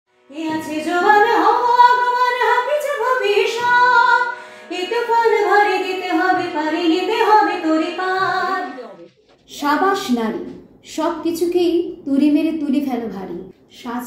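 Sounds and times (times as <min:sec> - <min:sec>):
woman singing: 0:00.3 - 0:08.8.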